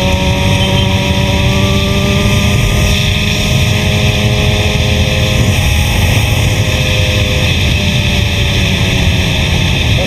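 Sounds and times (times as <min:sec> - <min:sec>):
motorcycle engine at high revs: 0:00.0 - 0:10.0
wind rush on microphone: 0:00.0 - 0:10.0.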